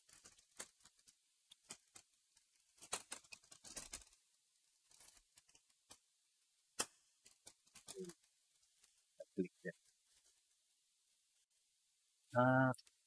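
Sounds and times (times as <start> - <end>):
plastic clicks and crackles: 0.1 - 4.2, 4.8 - 6.0, 6.8 - 9.0.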